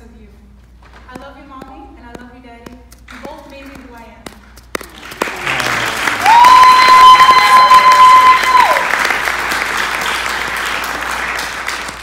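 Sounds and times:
audience applauding: 4.8 - 12.0
person cheering loudly: 5.3 - 8.9.

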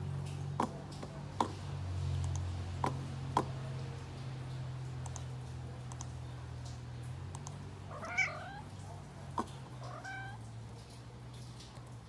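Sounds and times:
computer mouse clicking: 5.0 - 5.3, 5.9 - 6.1.

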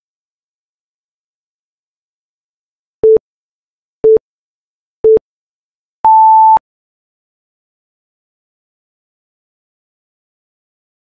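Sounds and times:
short low timer beeps: 6.1 - 6.6.

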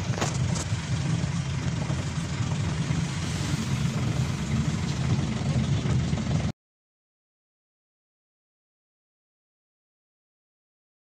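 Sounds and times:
road noise hiss: 0.0 - 6.5
bus engine rumbling: 0.0 - 6.6.

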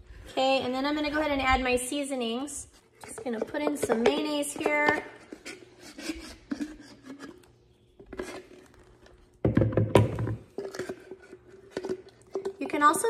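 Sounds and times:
spatula scraping a jar: 2.7 - 9.1
knocks and thumps: 9.4 - 10.4.

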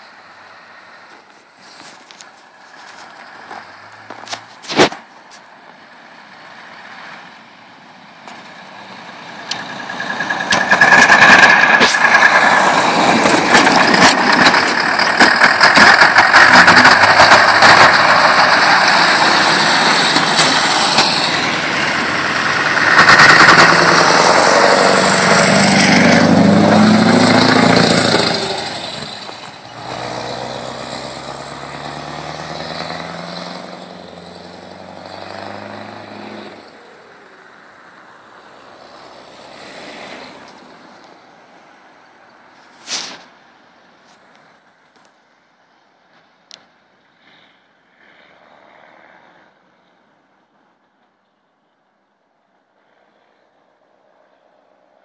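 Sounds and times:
truck engine passing: 0.0 - 5.1, 5.8 - 43.2
crackling exhaust rattle: 9.2 - 31.6.

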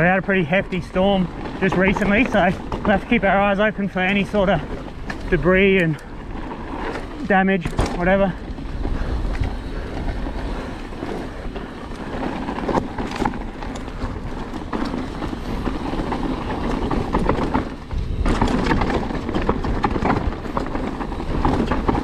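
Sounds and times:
bike knocking and rattling: 0.0 - 22.0
tyres rumbling on dirt: 0.0 - 22.0.

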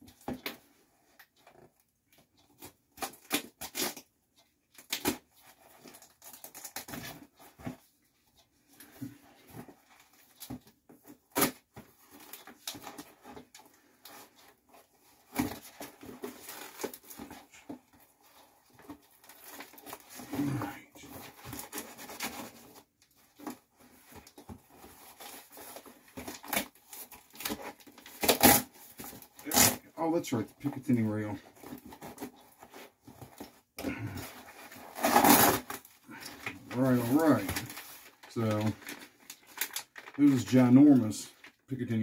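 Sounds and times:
paper and plastic crinkling: 8.8 - 42.0
knife slitting envelope: 34.5 - 36.2.

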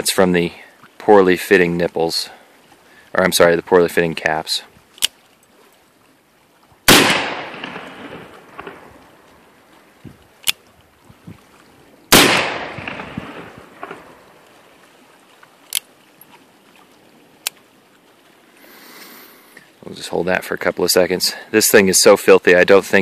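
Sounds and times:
revolver gunshots: 6.9 - 8.9, 12.1 - 14.1.

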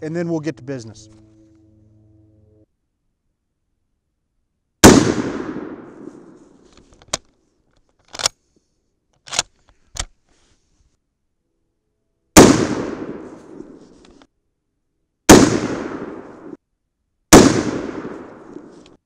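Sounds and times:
rifle shots with echo: 4.8 - 6.6, 12.4 - 13.8, 15.3 - 16.6, 17.3 - 18.8
rifle bolt metallic clicks: 6.7 - 8.4, 9.2 - 10.2.

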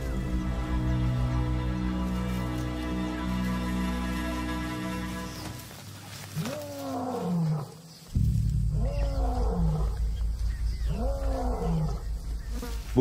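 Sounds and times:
low pulsing background music: 0.0 - 5.8, 8.0 - 13.0
lion roaring: 8.7 - 13.0.

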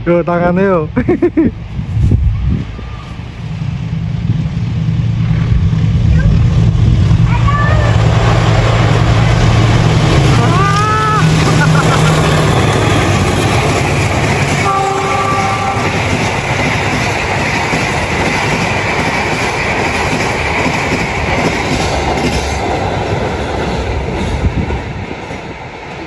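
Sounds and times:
train wheels rumbling and clacking: 0.0 - 26.0
train horn: 14.5 - 16.2.

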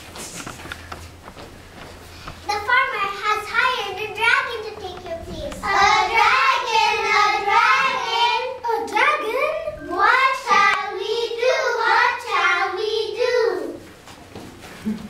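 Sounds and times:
young children singing: 3.4 - 13.8.

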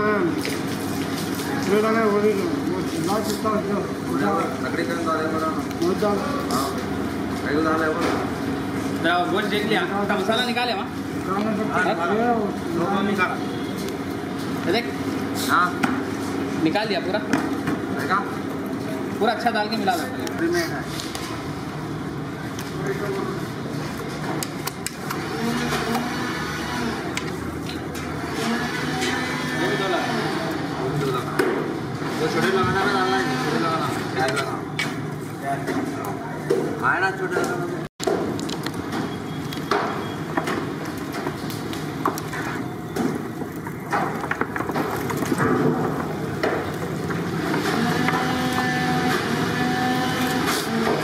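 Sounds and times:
machine hum: 24.9 - 35.3, 40.3 - 51.0.

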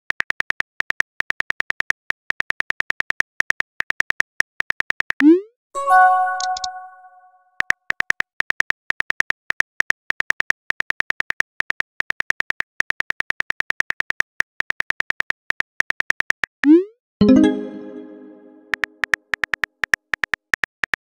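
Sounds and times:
chime: 5.8 - 7.4, 17.2 - 18.7
phone keyboard typing clicks: 6.3 - 6.9.

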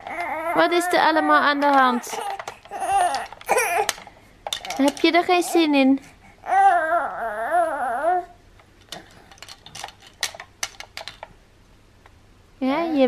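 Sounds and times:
baby whimpering: 0.0 - 4.0, 6.3 - 8.4.

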